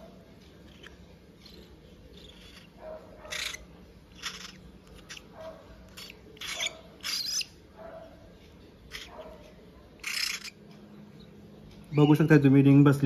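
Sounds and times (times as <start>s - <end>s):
cockatiel chick harsh calls: 0.6s - 7.6s, 8.9s - 9.3s, 10.0s - 10.6s.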